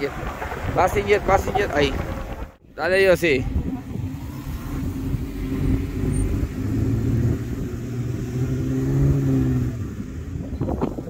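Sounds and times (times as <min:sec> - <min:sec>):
engine working under load: 0:03.5 - 0:11.0.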